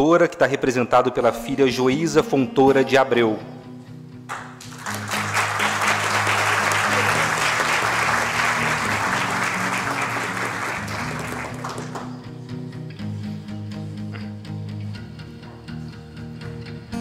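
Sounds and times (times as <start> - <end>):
background music: 0.0 - 17.0
audience applause: 4.3 - 12.2.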